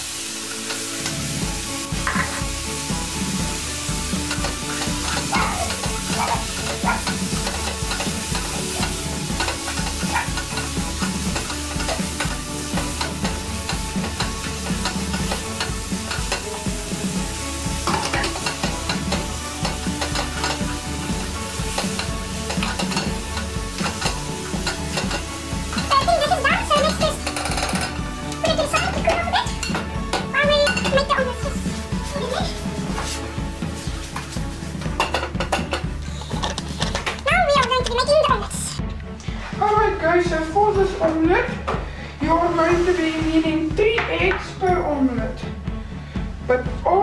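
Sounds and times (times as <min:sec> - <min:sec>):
food sizzling in a saucepan: 0:00.0 - 0:38.8, 0:42.5 - 0:44.3
spoon scraping: 0:35.0 - 0:37.2.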